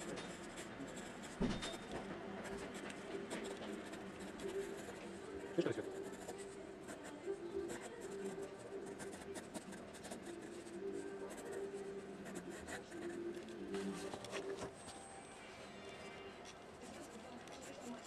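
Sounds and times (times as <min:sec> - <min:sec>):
pencil scratching on paper: 0:00.0 - 0:05.0, 0:05.9 - 0:07.1, 0:07.7 - 0:13.2.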